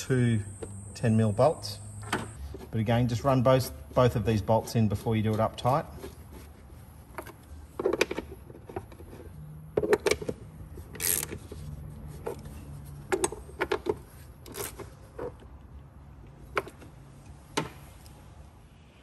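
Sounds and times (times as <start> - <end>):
ratchet clicking: 11.0 - 11.4.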